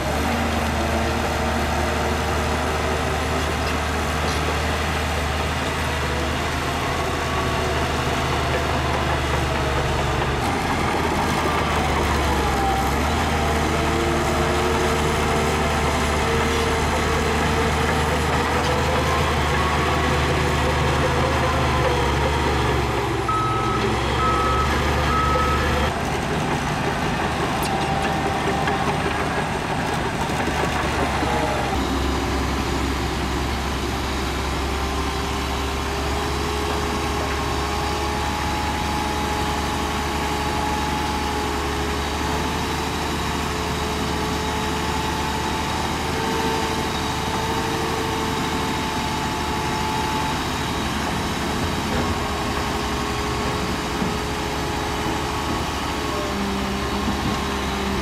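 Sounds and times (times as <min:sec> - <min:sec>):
diesel machinery running: 0:00.0 - 0:58.0
reversing alarm beeping: 0:21.9 - 0:25.9.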